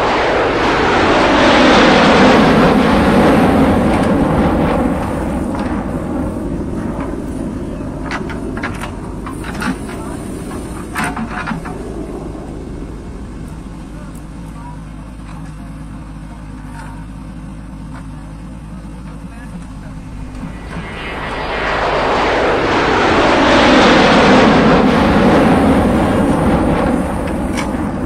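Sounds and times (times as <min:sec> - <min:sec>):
diesel engine running hard: 0:12.5 - 0:20.5.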